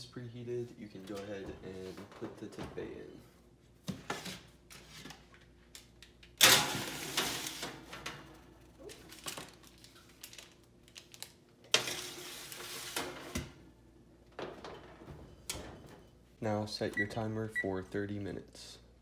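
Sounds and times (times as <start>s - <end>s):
baking sheet scraping oven rack: 11.7s - 13.6s.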